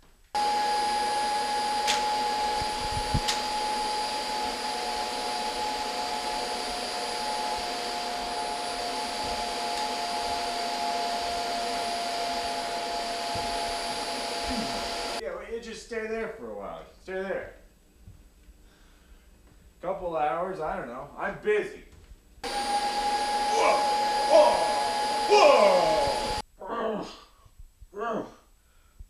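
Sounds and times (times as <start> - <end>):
vacuum cleaner motor whine: 0.4 - 15.2, 22.4 - 26.4.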